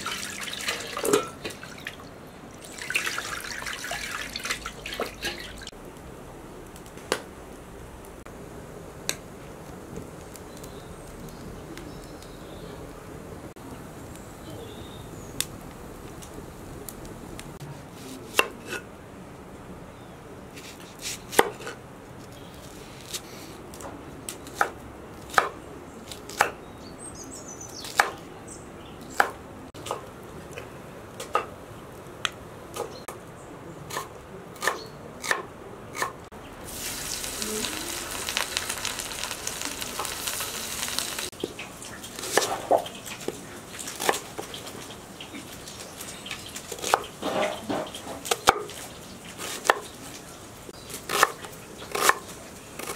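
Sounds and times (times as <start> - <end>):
wood fire crackling: 0.0 - 18.4, 27.1 - 33.4, 36.3 - 52.9
sharp fire pops: 6.7 - 7.3, 36.6 - 44.6
steady hiss: 36.4 - 46.7.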